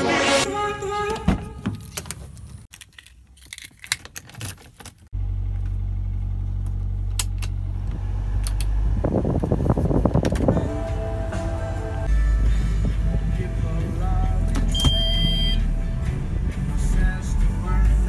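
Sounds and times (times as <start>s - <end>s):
car engine idling: 5.2s - 9.6s
music from car radio: 10.5s - 18.0s.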